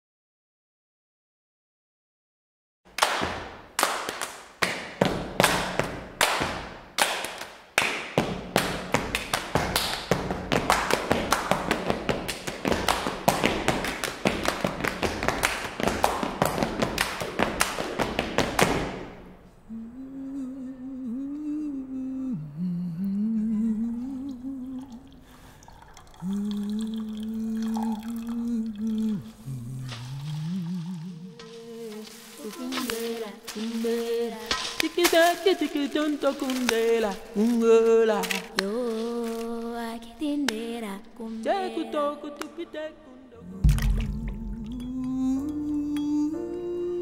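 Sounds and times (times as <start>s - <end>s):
person humming a melody: 19.7s - 25.2s, 26.2s - 35.7s, 41.4s - 47.0s
fast percussion hits: 43.6s - 45.2s.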